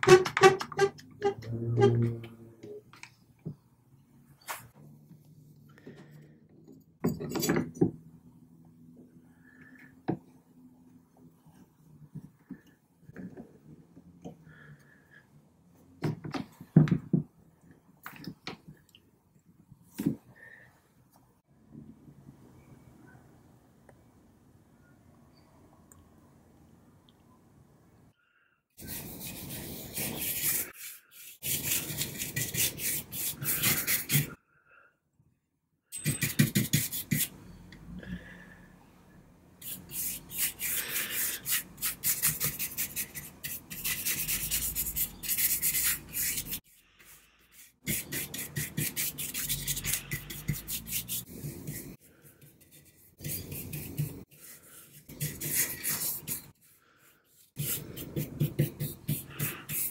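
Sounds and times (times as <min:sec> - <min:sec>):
paintbrush scrubbing wood: 0:39.6 - 0:59.9.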